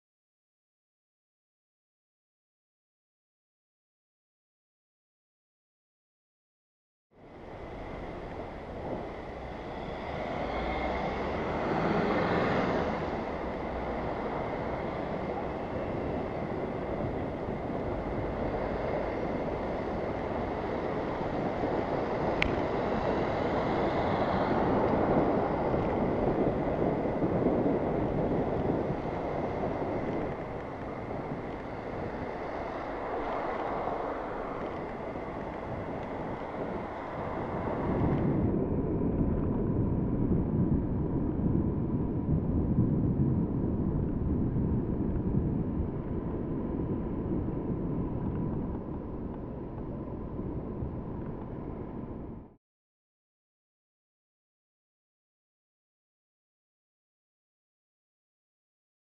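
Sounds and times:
vehicle noise: 7.1s - 52.6s
wind rushing over microphone: 7.2s - 52.6s.

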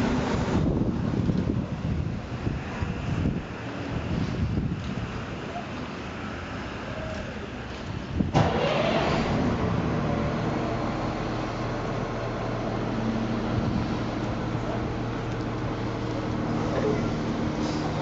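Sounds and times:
vehicle engine humming: 5.9s - 18.0s.

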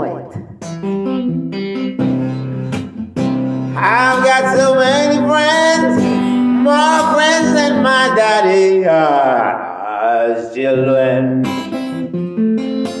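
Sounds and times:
strummed acoustic guitar: 0.3s - 8.8s, 10.8s - 13.0s
man singing long held notes: 3.8s - 11.6s.

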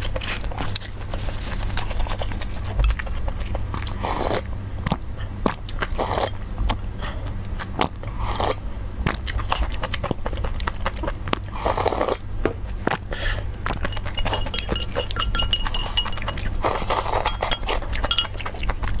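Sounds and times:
slurping soup and noodles: 3.8s - 4.5s, 5.8s - 6.4s
chewing with wet mouth clicks: 9.1s - 12.2s, 13.6s - 19.0s
low hum: 13.4s - 19.0s
chopsticks clinking on bowl: 13.8s - 18.7s.

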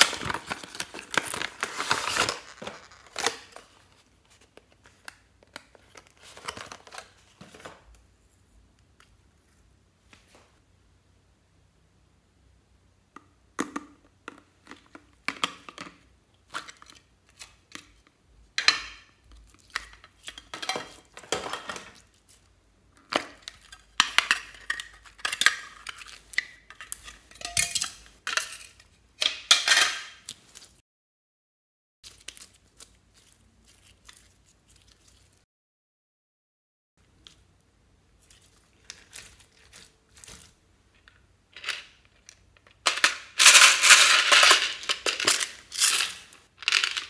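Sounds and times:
slime crackling and squelching: 32.0s - 35.4s, 38.1s - 40.6s.

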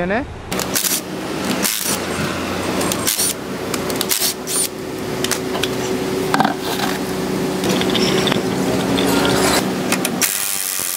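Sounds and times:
impact wrench spinning: 0.6s - 2.0s, 2.8s - 3.4s, 4.0s - 4.7s.

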